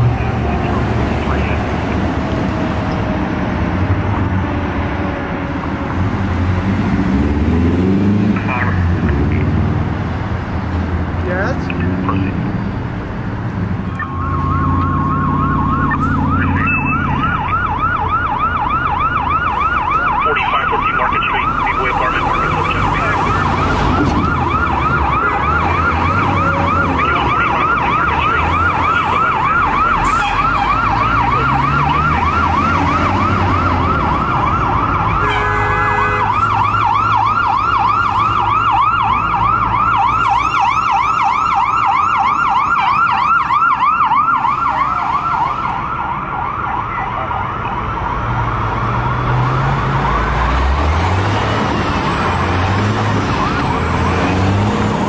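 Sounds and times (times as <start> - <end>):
siren yelping: 13.9 - 55.0
horn blast: 35.2 - 36.4.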